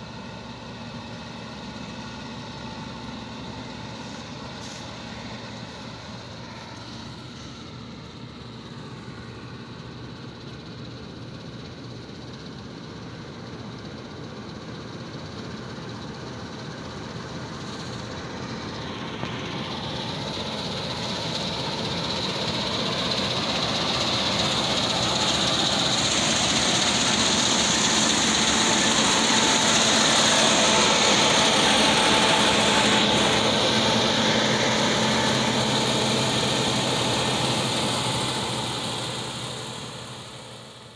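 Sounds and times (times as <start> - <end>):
combine harvester running: 0.0 - 40.9
high machine whine: 11.0 - 40.9.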